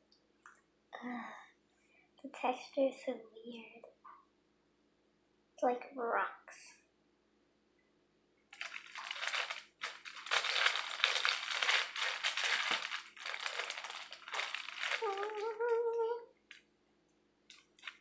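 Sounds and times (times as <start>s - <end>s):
cereal treat crunching: 8.6s - 15.8s, 17.5s - 18.0s.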